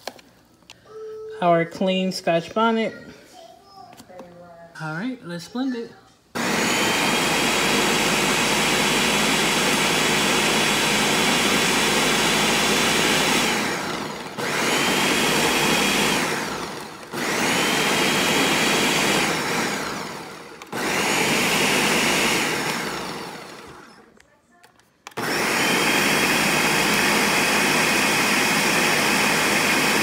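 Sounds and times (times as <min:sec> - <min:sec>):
blender motor running: 0:06.4 - 0:24.1, 0:25.1 - 0:30.0.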